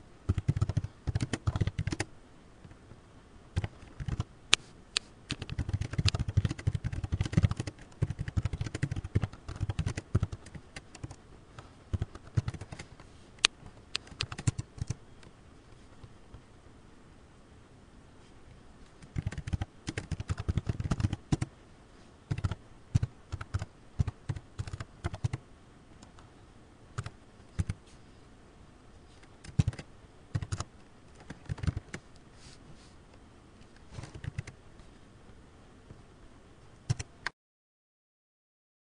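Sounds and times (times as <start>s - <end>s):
computer keyboard typing: 0.3s - 2.1s, 3.6s - 4.3s, 5.3s - 11.2s, 11.9s - 12.9s, 13.9s - 15.0s, 19.0s - 21.5s, 22.3s - 25.4s, 27.0s - 27.8s, 29.2s - 32.1s, 34.0s - 34.6s, 36.9s - 37.1s.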